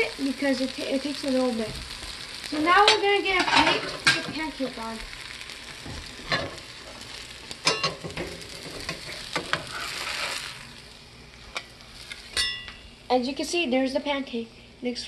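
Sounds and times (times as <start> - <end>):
pancake sizzling in a frying pan: 0.0 - 14.4
spatula scraping and knocking on pan: 2.8 - 4.5, 7.7 - 10.4.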